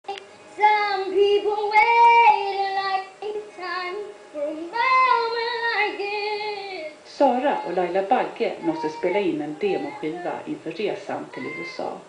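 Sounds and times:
girl singing through speakers: 0.0s - 7.9s.

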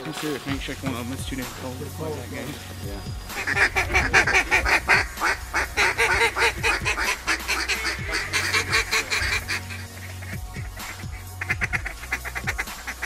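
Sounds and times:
waterfowl honking and quacking: 3.2s - 13.0s.

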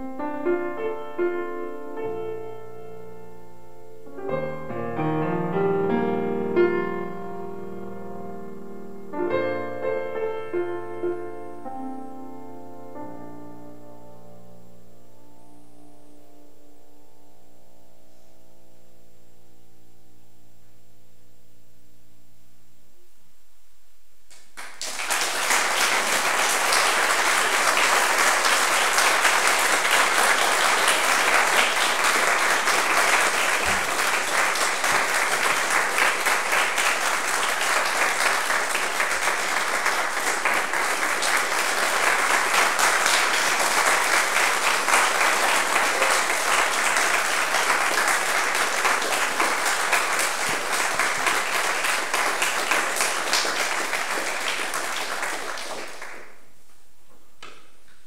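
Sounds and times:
grand piano chord: 0.0s - 21.3s, 25.6s - 54.5s
audience applause: 24.3s - 56.5s.

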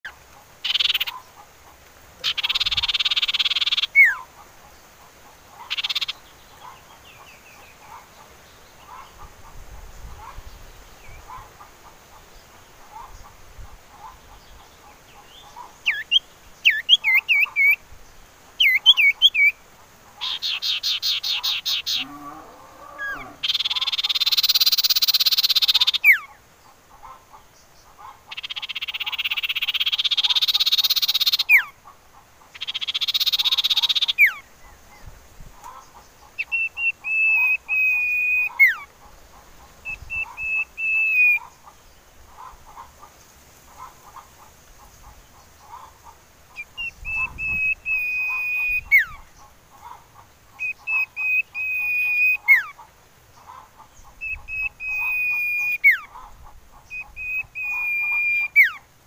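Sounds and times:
bird chirping and trilling: 0.0s - 1.3s, 2.2s - 4.3s, 5.6s - 8.1s, 14.0s - 17.8s, 18.6s - 19.6s, 20.2s - 26.4s, 28.3s - 31.8s, 32.6s - 35.1s, 35.9s - 38.9s, 39.8s - 41.7s, 46.6s - 49.4s, 50.6s - 52.8s, 53.4s - 58.8s
bird churring phrases: 0.6s - 1.2s, 2.2s - 4.3s, 20.2s - 26.4s, 53.5s - 58.8s.

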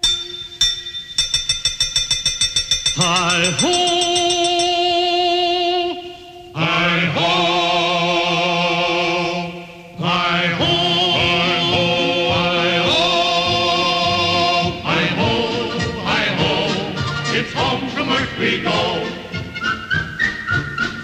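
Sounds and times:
wordless singing voices: 3.0s - 19.7s.

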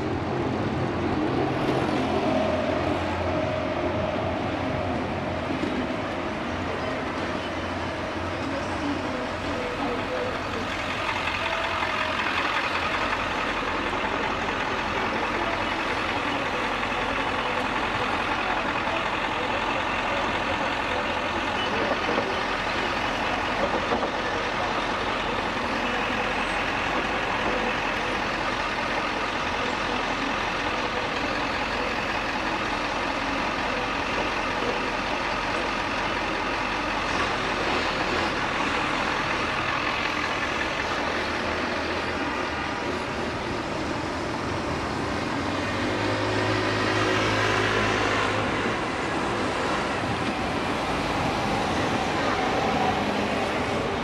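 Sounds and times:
city street traffic: 0.0s - 54.0s.

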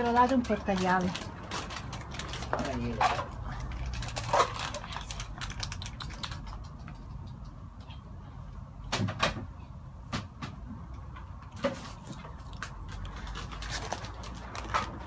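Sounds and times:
cats eating from bowls: 0.0s - 7.5s.

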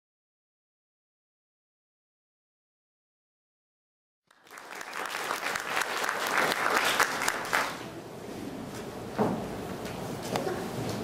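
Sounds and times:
audience applause: 4.3s - 7.9s.

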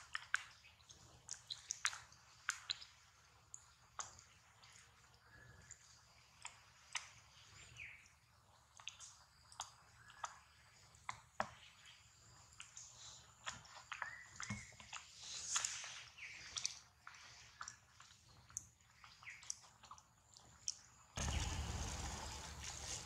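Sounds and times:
faint chirps: 21.2s - 23.0s.

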